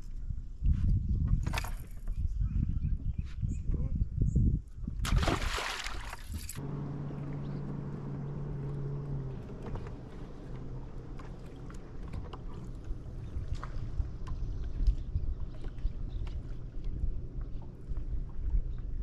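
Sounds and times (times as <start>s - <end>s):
fish splashing into water: 5.0s - 6.6s.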